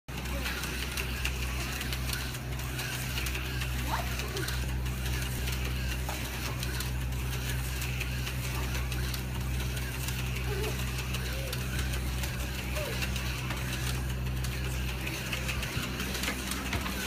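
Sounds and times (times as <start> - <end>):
slot car motors whirring: 0.1 - 17.0
steady low hum: 0.1 - 17.0
cars rattling in track slots: 8.0 - 17.0.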